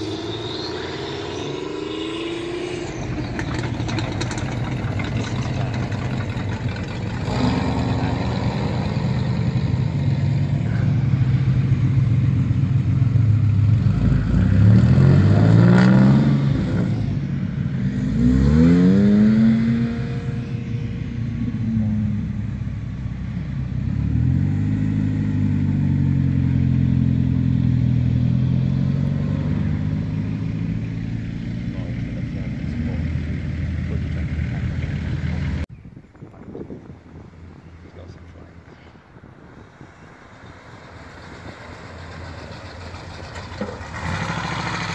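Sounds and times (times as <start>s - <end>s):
cars driving past revving: 0.0s - 35.7s, 37.6s - 44.9s.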